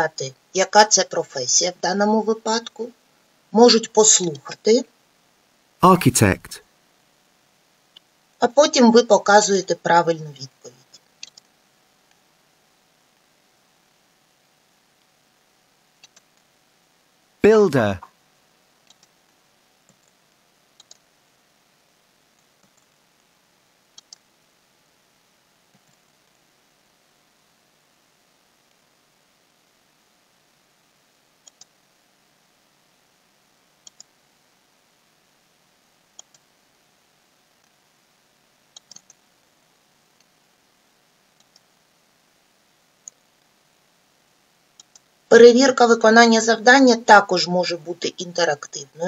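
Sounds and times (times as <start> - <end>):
faint computer mouse clicks: 11.2 - 11.5, 16.0 - 16.4, 18.8 - 19.2, 19.8 - 20.2, 20.8 - 21.1, 22.4 - 23.0, 23.9 - 24.3, 25.7 - 26.4, 31.4 - 31.8, 33.8 - 34.1, 36.2 - 36.5, 38.7 - 39.2, 41.4 - 41.7, 44.8 - 45.1.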